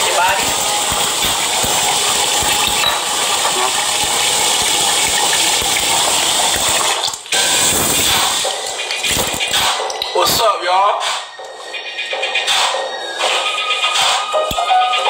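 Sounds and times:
running water rushing: 0:00.0 - 0:09.5.

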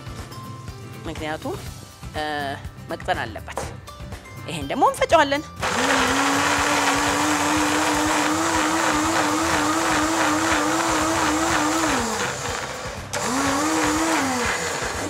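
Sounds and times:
blender motor running: 0:05.6 - 0:15.0.

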